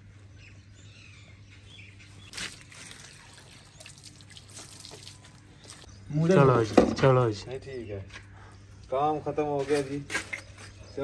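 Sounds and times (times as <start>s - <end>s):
water splashing: 2.3s - 5.9s
water trickling and dripping: 2.4s - 5.9s.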